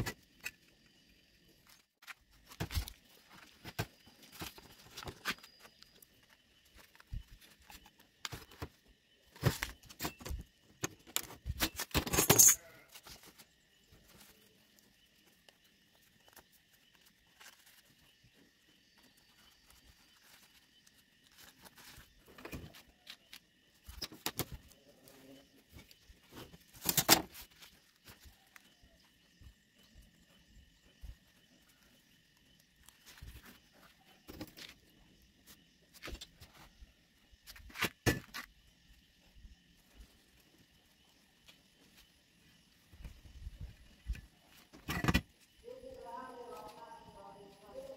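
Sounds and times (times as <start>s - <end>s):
paper rustling and crinkling: 1.6s - 12.0s, 12.9s - 29.4s.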